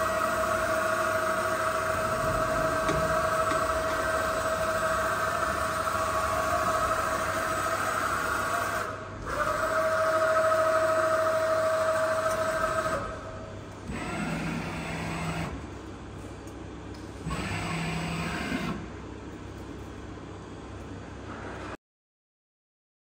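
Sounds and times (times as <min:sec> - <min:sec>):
lathe machine whine: 0:00.0 - 0:15.6.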